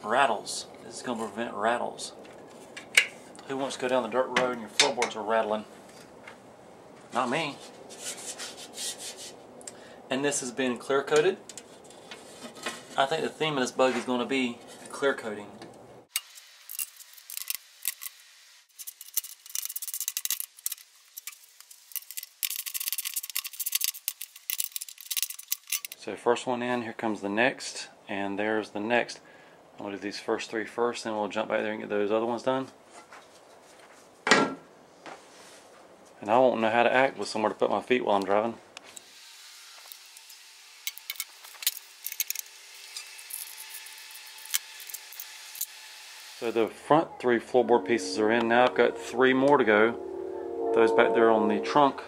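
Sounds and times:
metallic clicks of screws and tools: 16.1s - 18.1s, 18.8s - 26.0s, 40.9s - 45.7s.

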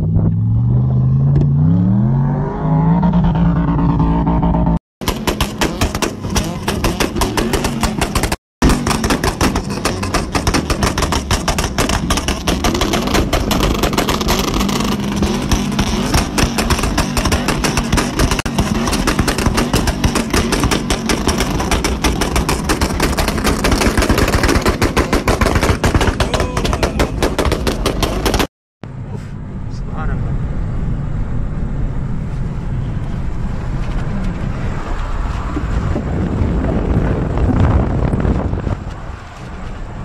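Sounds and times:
exhaust backfiring bangs and pops: 2.9s - 28.5s
truck engine running: 3.1s - 34.0s.

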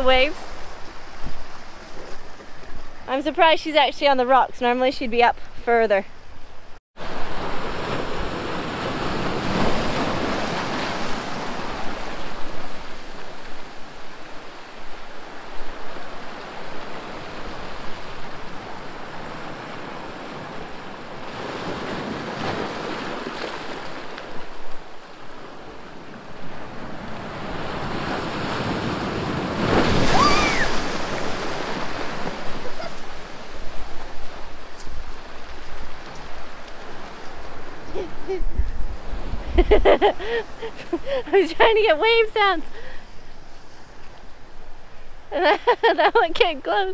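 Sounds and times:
waves washing over rocks and sand: 7.0s - 38.0s.

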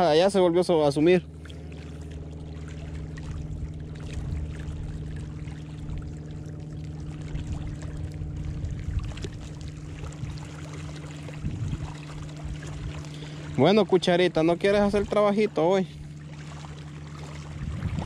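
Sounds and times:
low hum of held tones: 0.0s - 18.0s
wind noise on microphone: 11.3s - 13.0s, 17.5s - 18.0s.

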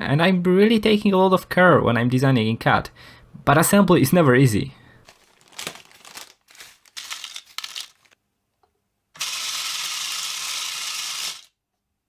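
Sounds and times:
plastic bag crinkling: 5.0s - 8.2s
screws clattering: 9.2s - 11.5s
screws tumbling in spinning drum: 9.2s - 11.5s.

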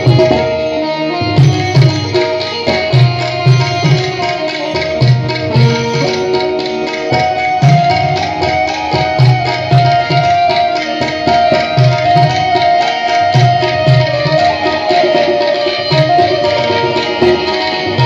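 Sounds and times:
sustained melody line: 0.0s - 18.0s
tabla playing a steady rhythm: 0.0s - 18.0s.

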